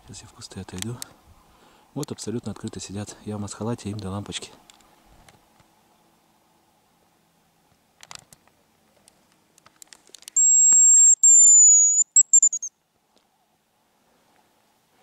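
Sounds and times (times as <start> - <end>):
soft rustles and clicks: 7.7 - 11.1
decoy whistle high notes: 10.4 - 12.7.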